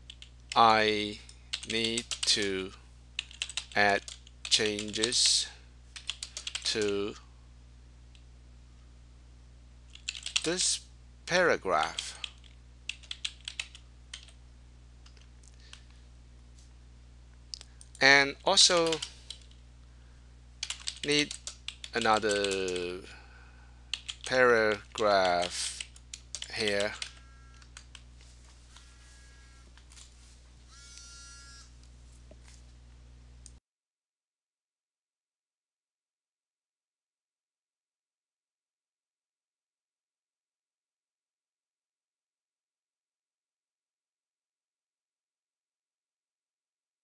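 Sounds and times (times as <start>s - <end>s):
computer keyboard typing: 0.0s - 0.7s, 1.5s - 2.5s, 3.2s - 5.4s, 6.0s - 7.1s, 9.9s - 10.6s, 11.8s - 14.4s, 18.7s - 19.6s, 20.6s - 23.0s, 23.9s - 28.0s
faint electrical hum: 0.0s - 33.6s.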